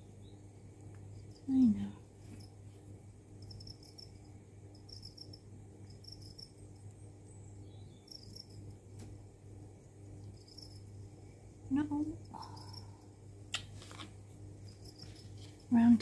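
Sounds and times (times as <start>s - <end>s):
faint insect chirping: 0.0s - 13.5s, 14.3s - 16.0s
low steady hum: 0.0s - 16.0s.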